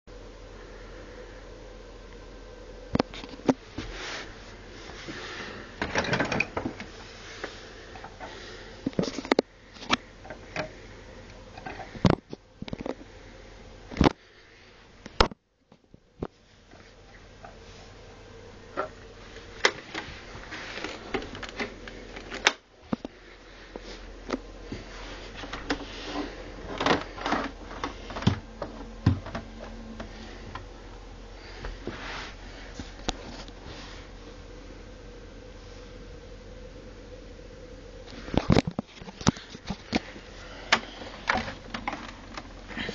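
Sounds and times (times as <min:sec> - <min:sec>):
dehumidifier fan whirring: 0:00.1 - 0:42.9
plastic knocks and clatter: 0:26.7 - 0:29.5, 0:40.7 - 0:42.6.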